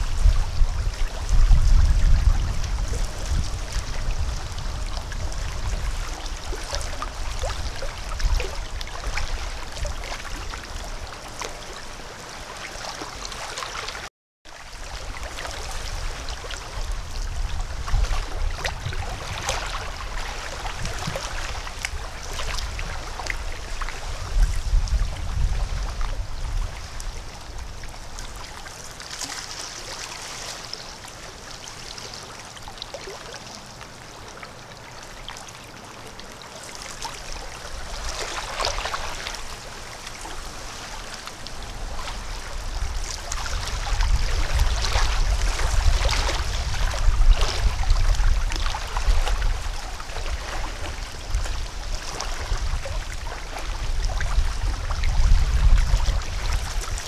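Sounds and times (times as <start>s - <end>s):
rushing water: 0.0s - 57.0s.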